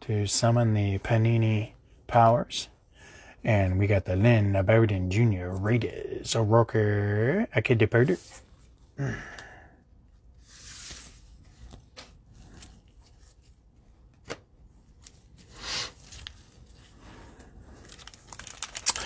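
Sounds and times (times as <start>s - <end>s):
rustling of cards and wrappers: 10.4s - 19.0s.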